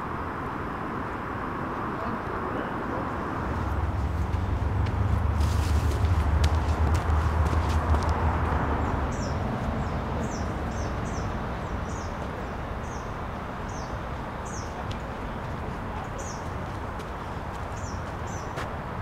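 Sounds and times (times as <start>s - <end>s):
songbird chirping: 5.9s - 18.6s.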